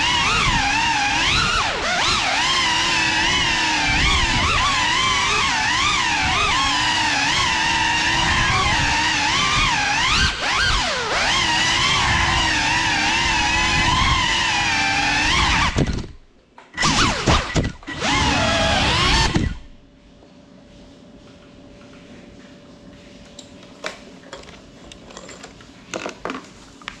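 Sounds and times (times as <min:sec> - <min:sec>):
drone motors whining: 0:00.0 - 0:19.8.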